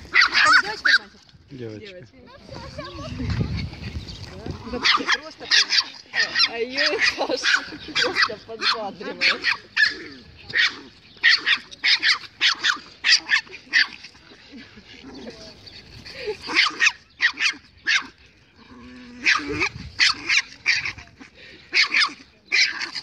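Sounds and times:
small dog yapping: 0.1s - 1.1s, 4.7s - 14.0s, 16.5s - 18.1s, 19.2s - 21.0s.

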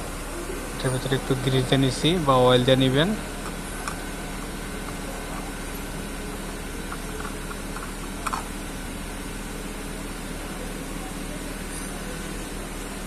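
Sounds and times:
low mechanical hum: 0.0s - 13.0s.

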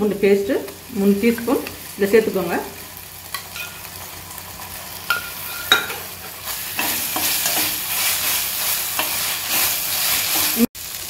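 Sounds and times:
onions sizzling in a pan: 0.0s - 11.0s
metal spatula scraping a pan: 5.0s - 10.7s.

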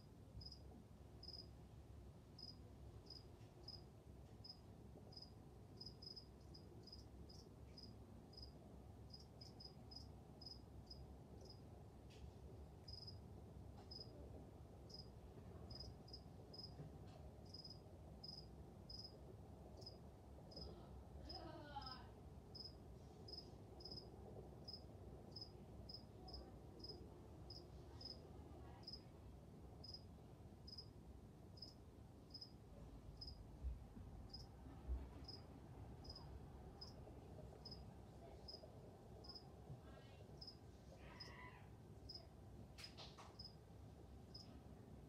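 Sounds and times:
low room noise: 0.0s - 45.0s.

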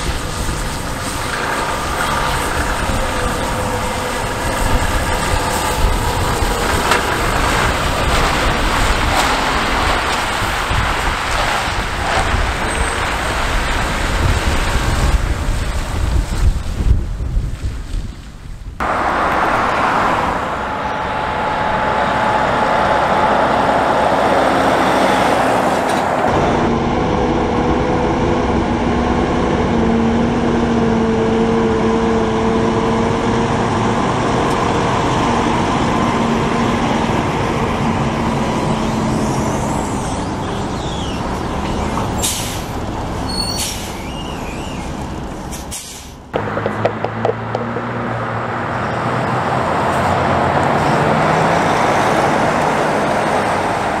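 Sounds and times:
diesel engine running at low speed: 0.0s - 17.4s, 18.7s - 54.0s
truck passing on road: 0.0s - 17.9s, 18.7s - 54.0s
air brake hisses: 42.2s - 42.7s, 43.3s - 44.2s, 45.5s - 46.2s.

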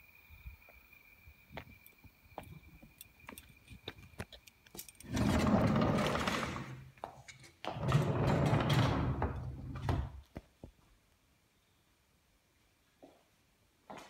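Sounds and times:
sliding door clicks: 5.1s - 6.8s, 7.7s - 10.2s
sliding door rolling along track: 5.1s - 6.8s, 7.7s - 10.1s.

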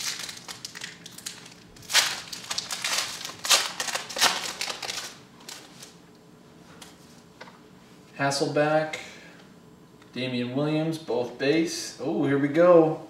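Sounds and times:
wrapper being torn and crinkled: 0.0s - 6.0s.

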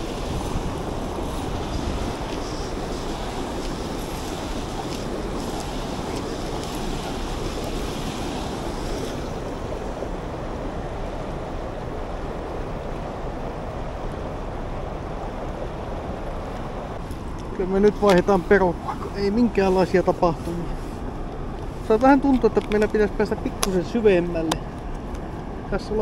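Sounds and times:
river rapids rushing: 0.0s - 17.3s.

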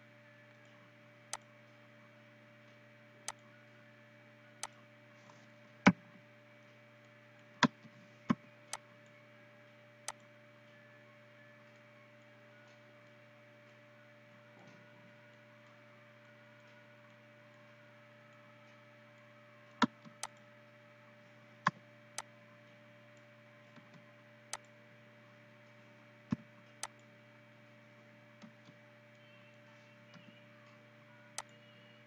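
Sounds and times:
steady low hum: 0.0s - 32.0s
computer mouse clicks: 3.2s - 3.4s, 10.1s - 10.3s, 19.7s - 20.5s, 26.3s - 27.1s, 31.3s - 31.6s.

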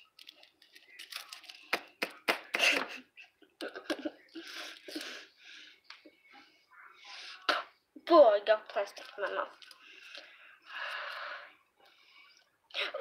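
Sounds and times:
plastic wrapper crinkling and tearing: 0.0s - 2.2s.

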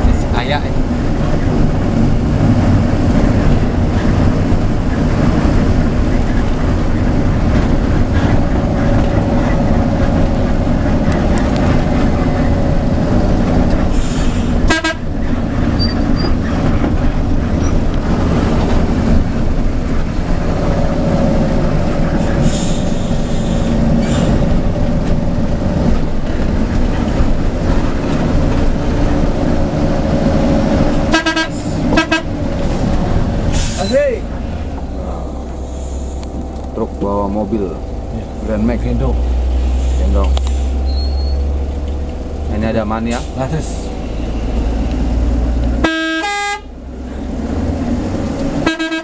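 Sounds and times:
bus diesel engine running: 0.0s - 49.0s
road noise: 0.0s - 49.0s
short horn toots: 45.8s - 46.7s, 48.6s - 49.0s.

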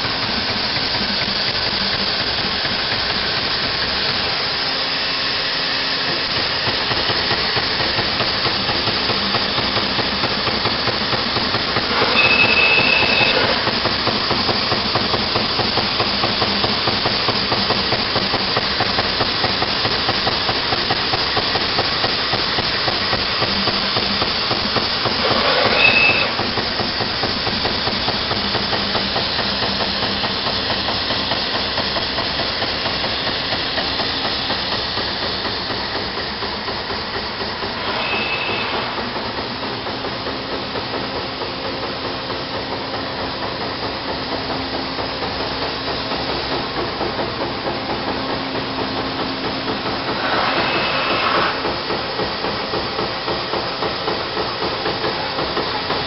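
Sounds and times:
machine hiss: 0.0s - 56.0s
rush with high whistle: 11.8s - 13.7s, 25.2s - 26.4s, 37.8s - 39.1s, 50.2s - 51.7s.

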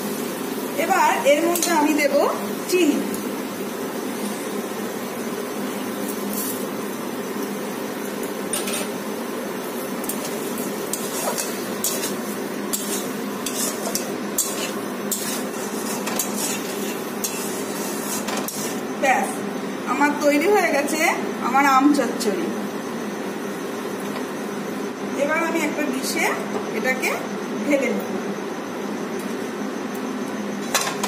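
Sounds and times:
metal spatula scraping pan: 10.1s - 18.8s.

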